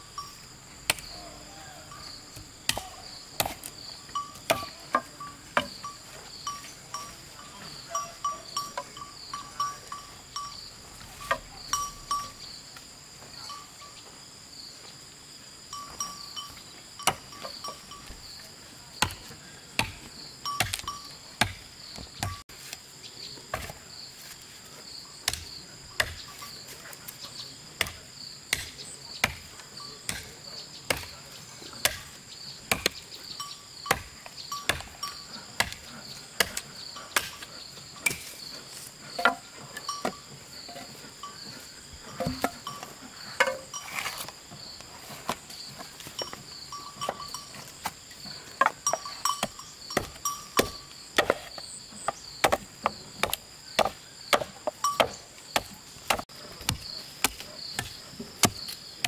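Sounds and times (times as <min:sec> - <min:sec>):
insects trilling: 0:00.0 - 0:59.0
hand tool knocking: 0:48.6 - 0:51.4.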